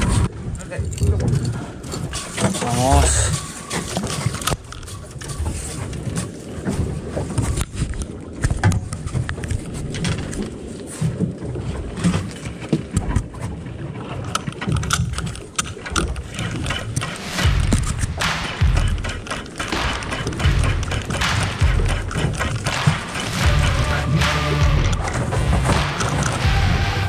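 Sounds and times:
fishing reel clicks and knocks: 14.3 - 26.5
low uneven boat rumble: 16.1 - 27.0.

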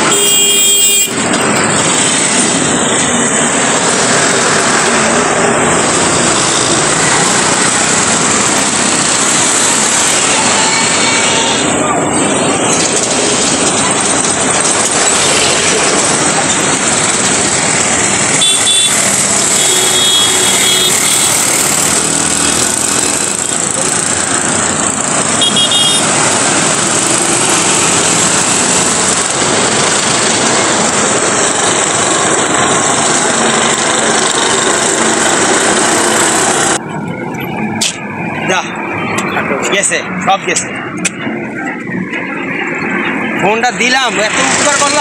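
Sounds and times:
road traffic passing: 0.0 - 45.0
vehicle horn toots: 0.1 - 1.2, 18.4 - 21.4, 25.4 - 26.1.

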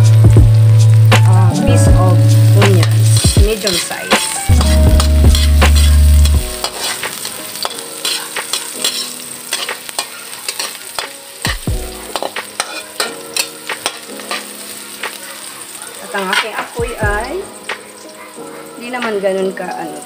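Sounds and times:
garlic and onions sizzling in oil: 0.0 - 20.0
metal spatula scraping wok: 2.8 - 14.7, 16.1 - 16.7
loud low drone: 4.6 - 6.6.

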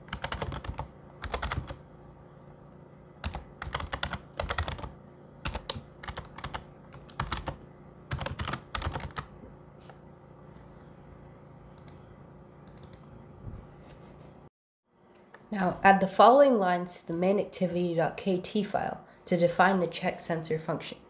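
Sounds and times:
computer keyboard typing: 0.0 - 1.8, 3.2 - 9.3, 11.8 - 12.0, 12.6 - 13.0.

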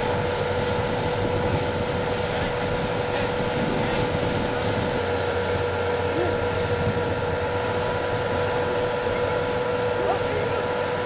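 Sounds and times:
motor humming: 0.0 - 11.0.

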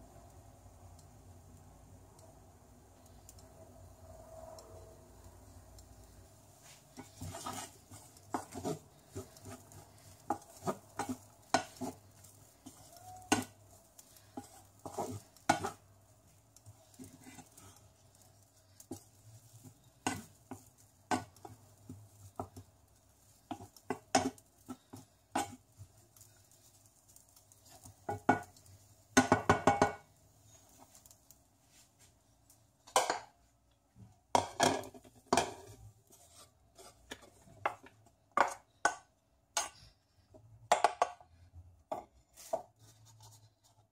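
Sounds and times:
wooden spatula scraping frying pan: 6.0 - 32.1, 34.3 - 39.0, 41.9 - 43.9
spatula knocking against pan: 13.2 - 13.6, 29.2 - 30.0.

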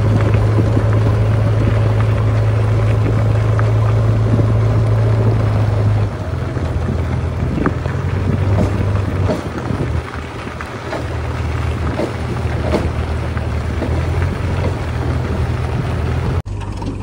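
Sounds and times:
diesel engine humming: 0.0 - 17.0.

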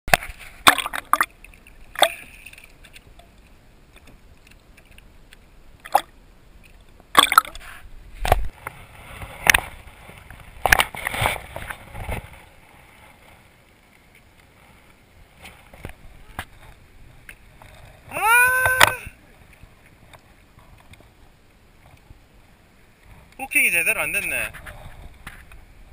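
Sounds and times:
water gurgling: 0.1 - 12.7.

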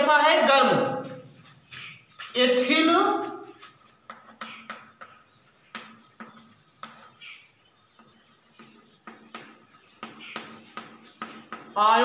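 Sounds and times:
chalk tapping on blackboard: 3.6 - 7.2.

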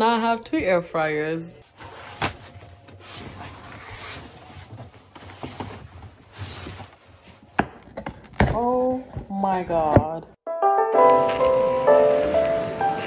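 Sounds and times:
cardboard scraping: 1.6 - 7.6.

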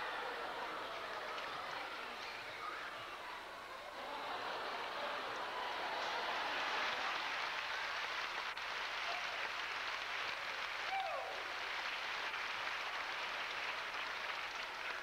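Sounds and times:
audience applause: 0.0 - 2.2, 3.8 - 15.0
crowd noise: 0.0 - 15.0.

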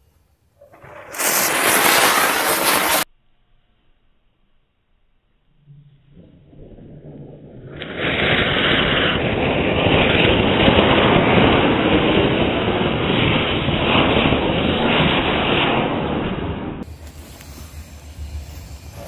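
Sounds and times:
fountain firework hissing: 0.6 - 3.1, 7.4 - 15.8, 16.8 - 19.0.

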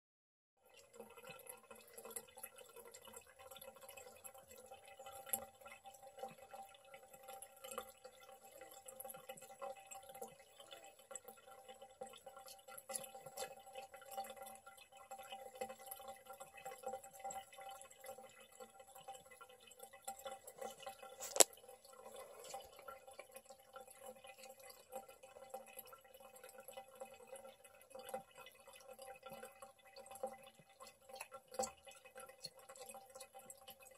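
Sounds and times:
tap water trickling into sink: 0.6 - 33.9.

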